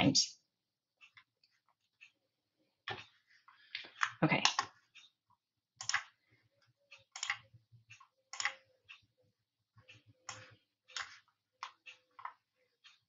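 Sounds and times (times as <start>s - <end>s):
computer mouse clicking: 5.8s - 6.2s, 6.9s - 9.0s, 9.8s - 13.0s.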